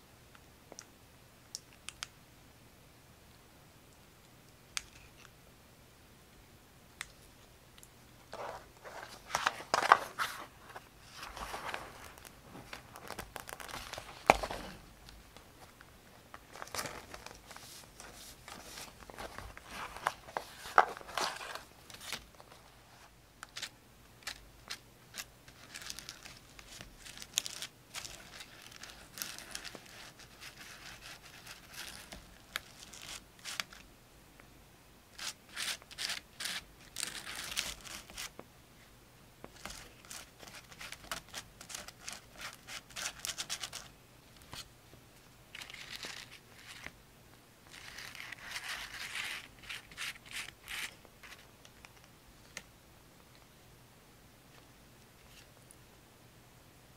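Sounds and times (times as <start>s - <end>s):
paper crinkling and tearing: 8.4s - 14.8s, 23.4s - 33.8s, 35.2s - 38.4s, 39.6s - 43.9s, 47.7s - 51.4s.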